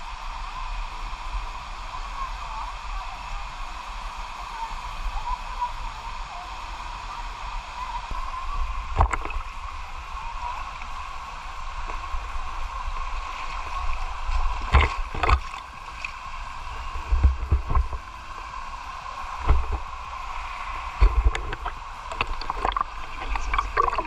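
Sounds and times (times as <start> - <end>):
flowing water rushing: 0.0 - 24.0
water splashing from wading: 8.6 - 24.0.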